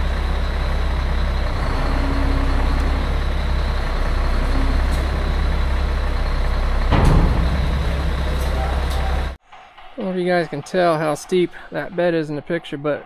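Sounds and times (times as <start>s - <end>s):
diesel engine running: 0.0s - 9.4s
hydraulic hoist raising: 1.3s - 9.4s.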